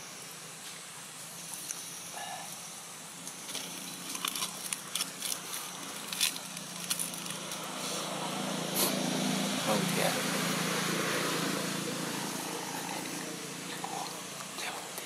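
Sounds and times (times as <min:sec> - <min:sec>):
low steady hum: 0:00.0 - 0:15.0
dry leaves crackling and rustling: 0:03.2 - 0:08.2.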